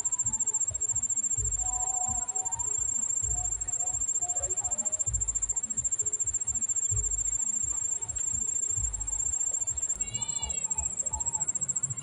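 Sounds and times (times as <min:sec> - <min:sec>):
insect trilling: 0:00.0 - 0:12.0
dull low thumps: 0:00.8 - 0:02.2, 0:02.9 - 0:04.1, 0:05.0 - 0:10.1.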